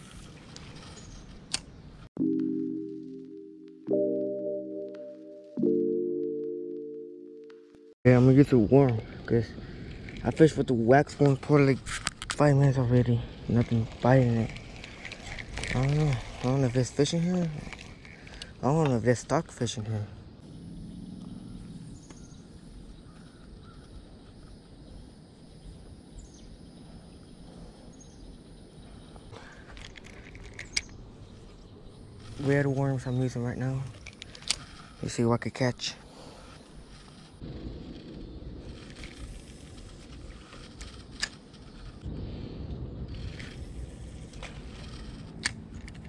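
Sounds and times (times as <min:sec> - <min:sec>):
low rumble: 0:37.4 - 0:46.0
low rumble on microphone: 0:41.7 - 0:45.8.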